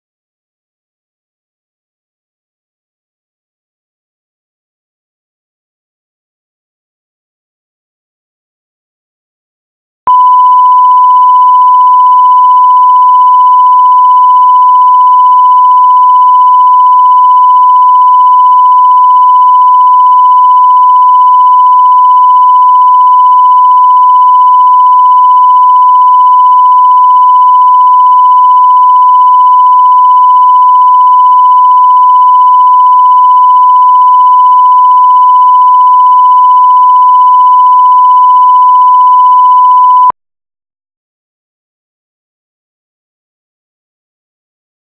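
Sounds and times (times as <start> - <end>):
steady reference tone beep: 10.1 - 40.1.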